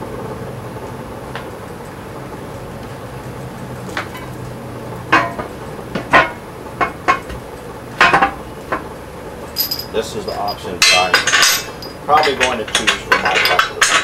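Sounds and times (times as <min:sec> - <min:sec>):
metal wheel clanking on steel rim: 0:05.1 - 0:07.4, 0:09.5 - 0:14.0.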